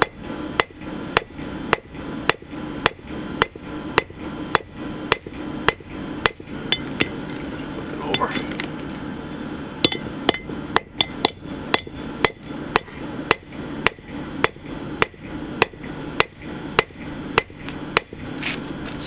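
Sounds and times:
hammer striking metal on anvil: 0:09.8 - 0:18.2.

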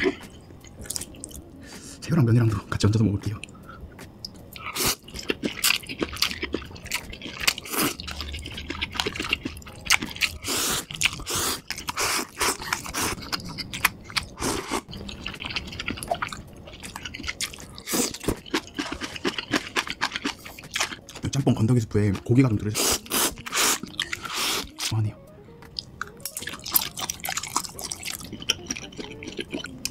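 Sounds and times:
wet chewing and smacking: 0:00.0 - 0:01.5, 0:03.4 - 0:22.3, 0:25.6 - 0:29.9
slurping noodles: 0:10.3 - 0:13.3.

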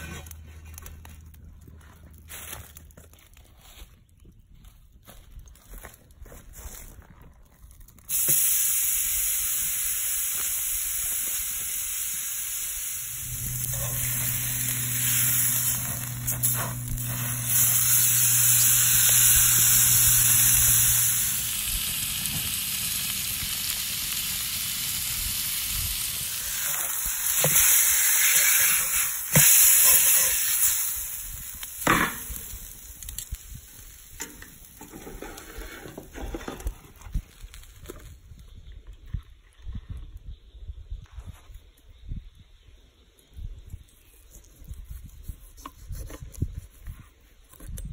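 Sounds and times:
steak sizzling on a griddle: 0:08.1 - 0:35.7
low hum: 0:12.8 - 0:27.6.

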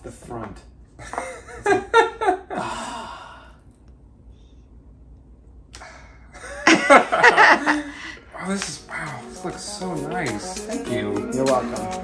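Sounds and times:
person making breathy sigh: 0:02.6 - 0:03.6.

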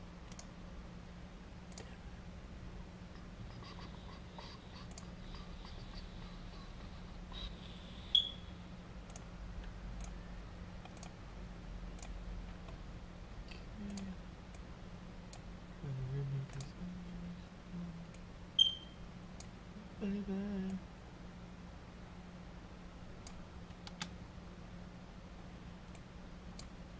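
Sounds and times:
steady low hum: 0:00.0 - 0:26.9
sharp ringing ticks: 0:08.1 - 0:08.5, 0:18.6 - 0:19.5.

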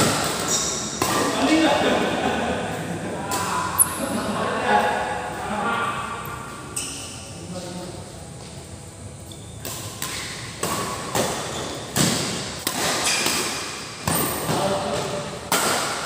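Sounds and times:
rackets striking shuttlecock: 0:00.0 - 0:01.6, 0:09.5 - 0:16.0.

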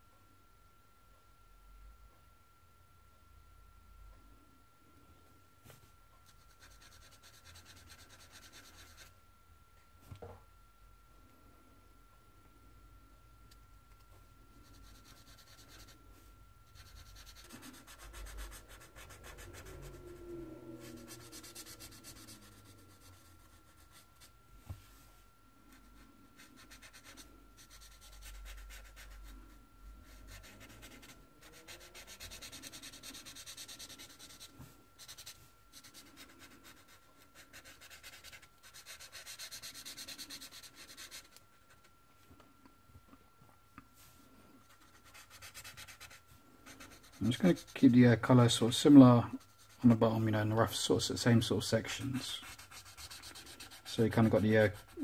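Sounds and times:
thin steady whine: 0:00.0 - 0:55.0
marker rubbing on paper: 0:20.8 - 0:24.3, 0:30.1 - 0:41.4, 0:51.4 - 0:55.0.

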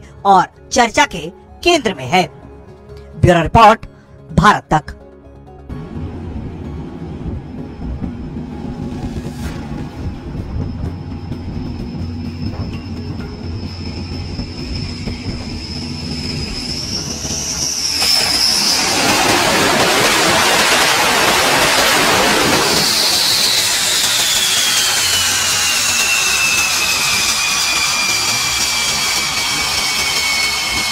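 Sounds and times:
jet engine whine: 0:05.3 - 0:30.9
loud jet engine rush: 0:05.7 - 0:30.9.

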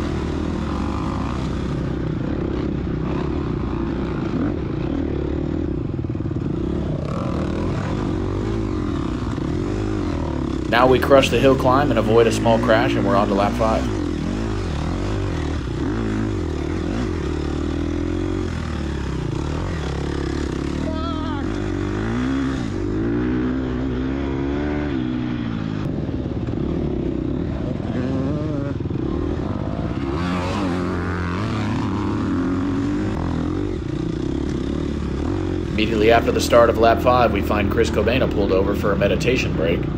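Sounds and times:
dirt bike engine revving: 0:00.0 - 0:39.9.

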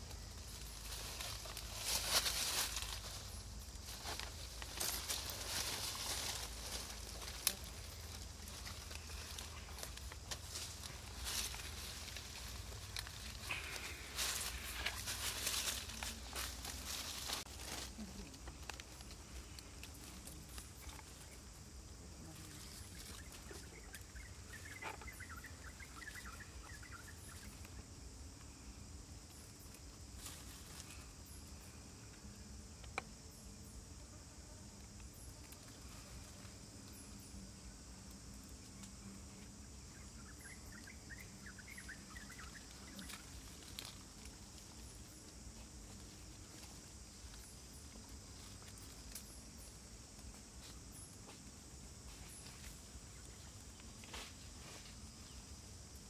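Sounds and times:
high insect drone: 0:00.0 - 0:56.0.

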